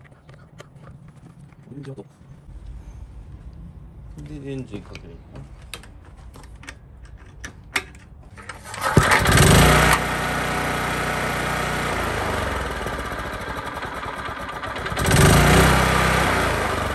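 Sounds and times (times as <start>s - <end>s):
small petrol engine running: 8.4s - 16.9s.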